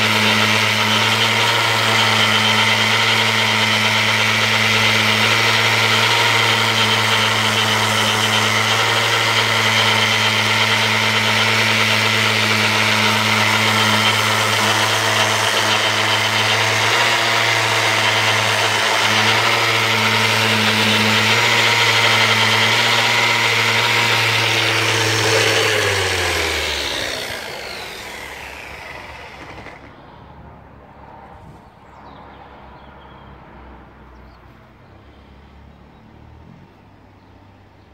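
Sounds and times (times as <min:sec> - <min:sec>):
sander on wood: 0:00.0 - 0:30.0.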